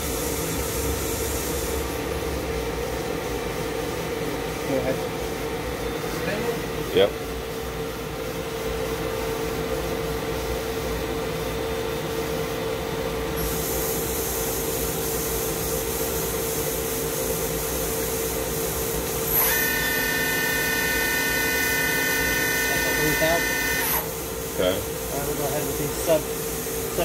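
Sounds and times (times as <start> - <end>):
multi-tone machine whine: 19.2 - 24.2
lathe machine hum: 19.2 - 24.3.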